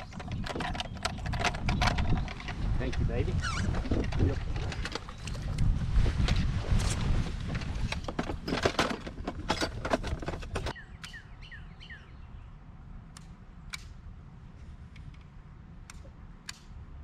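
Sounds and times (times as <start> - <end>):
low wind rumble: 0.0 - 17.0
small bird chirping: 10.7 - 12.5.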